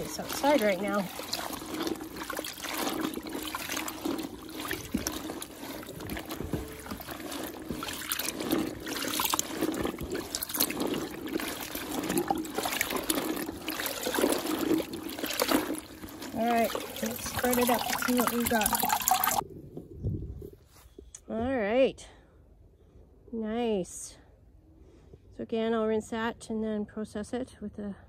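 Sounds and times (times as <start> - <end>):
wet fabric squelching: 0.0 - 19.4
water sloshing and trickling: 0.0 - 20.8.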